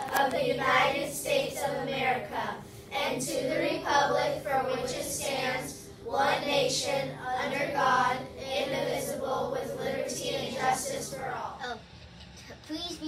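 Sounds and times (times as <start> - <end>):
children reciting in unison: 0.0 - 11.6.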